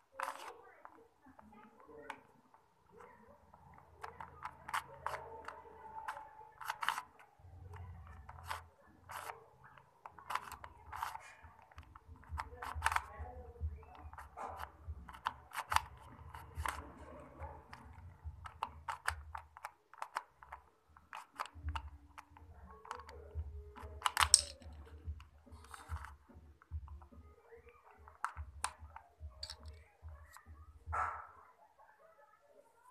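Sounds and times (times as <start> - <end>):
puzzle cube clicking as turned: 0.2 - 1.0, 3.6 - 13.3, 13.9 - 23.2, 23.8 - 26.1.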